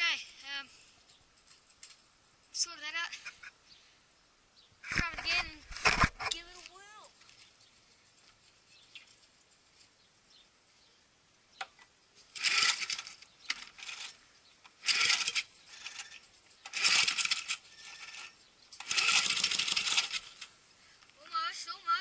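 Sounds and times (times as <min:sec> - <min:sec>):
recoil starter rope whirring: 0:12.3 - 0:20.5.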